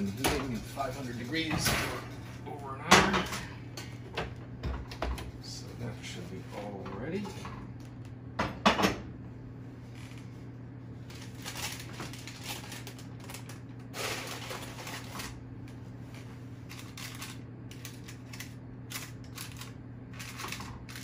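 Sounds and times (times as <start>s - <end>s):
steady low hum: 0.0s - 21.0s
parchment paper crinkling: 11.0s - 21.0s.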